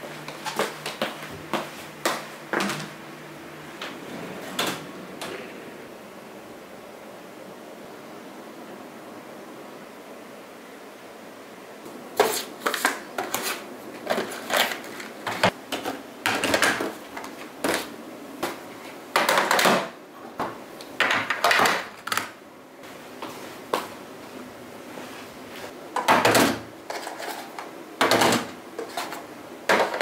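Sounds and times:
desk items clattering on table: 19.1s - 19.9s, 26.0s - 30.0s.

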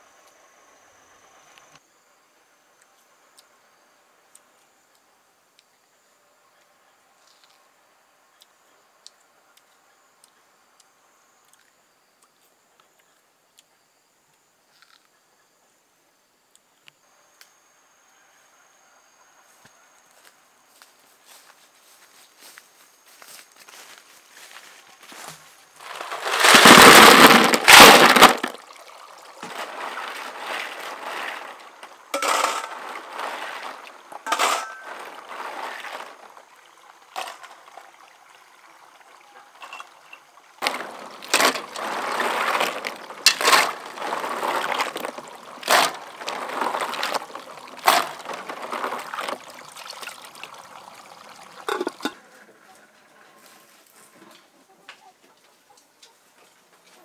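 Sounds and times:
water sloshing and pouring: 25.8s - 52.2s.

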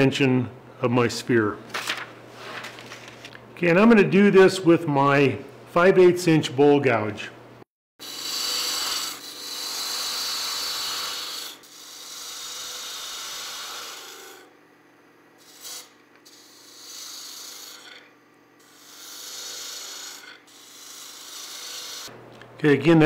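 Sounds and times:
gouge shaving wood: 8.0s - 14.5s, 15.5s - 18.0s, 18.7s - 22.1s
lathe humming: 8.0s - 14.5s, 15.4s - 18.1s, 18.7s - 22.2s.

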